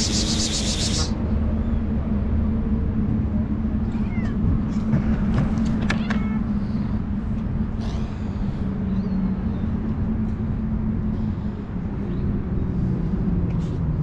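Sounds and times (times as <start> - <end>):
engine running with low hum: 0.0 - 14.0.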